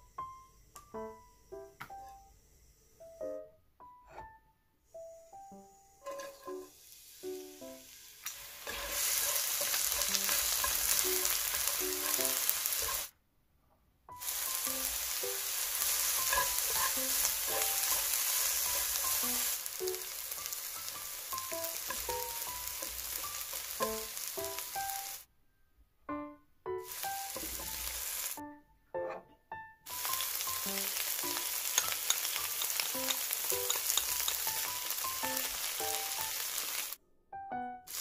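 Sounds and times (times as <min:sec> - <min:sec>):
onion sizzling in oil: 0:05.2 - 0:13.1, 0:14.1 - 0:25.2, 0:26.8 - 0:28.4, 0:29.9 - 0:37.0.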